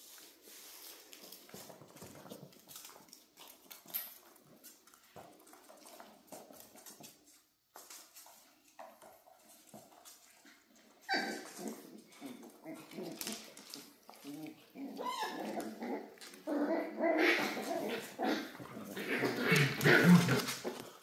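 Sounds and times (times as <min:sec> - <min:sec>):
puppy vocal sounds: 0:10.2 - 0:21.0
claws clicking on hard floor: 0:11.2 - 0:16.5, 0:17.5 - 0:21.0.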